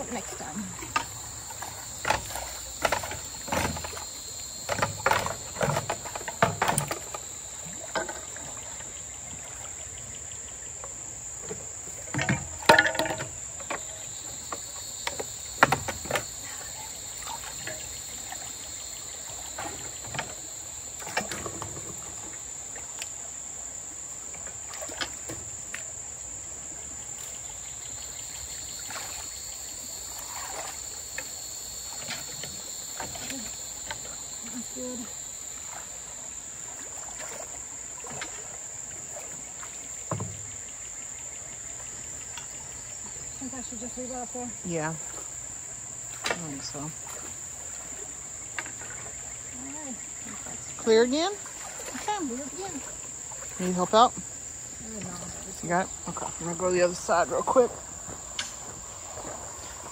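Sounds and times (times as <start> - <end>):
knocks and thumps: 0.8 - 7.3, 11.4 - 16.3, 40.1 - 40.5
lower insect buzz: 27.1 - 59.9
high-pitched insect drone: 27.6 - 37.0.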